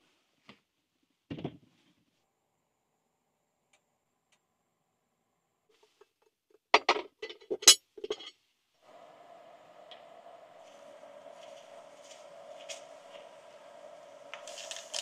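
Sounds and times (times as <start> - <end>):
metallic clinks and knocks of pot: 6.8 - 8.4
faint steady hiss: 8.4 - 15.0.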